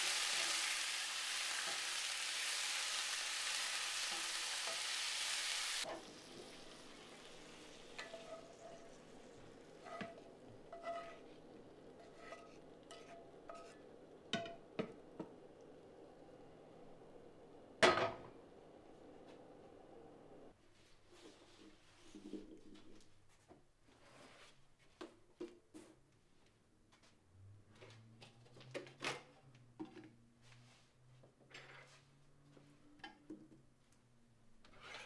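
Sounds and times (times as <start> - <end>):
meat sizzling in frying pan: 0.0 - 11.9
wooden spoon scraping pan: 7.8 - 14.5, 34.7 - 35.0.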